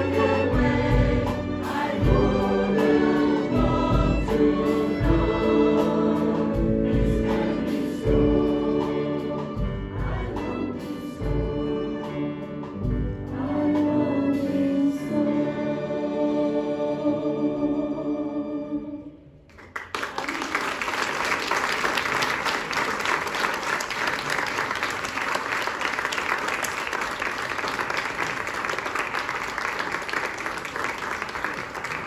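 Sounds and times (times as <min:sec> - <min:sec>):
choir and ensemble chord: 0:00.0 - 0:19.4
audience applause: 0:19.5 - 0:32.0.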